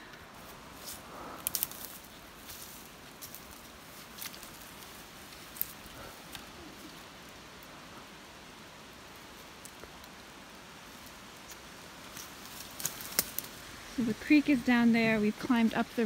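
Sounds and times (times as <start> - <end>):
faint steady hiss: 0.0 - 16.0
small clicks and ticks: 1.4 - 2.0, 9.2 - 10.3, 11.0 - 13.6.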